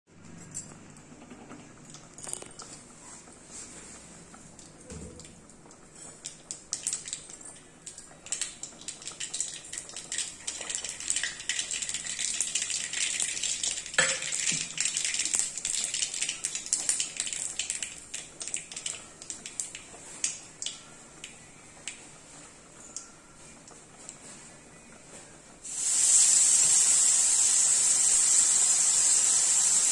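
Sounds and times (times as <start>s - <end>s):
spice seeds popping in hot oil: 4.6s - 22.0s.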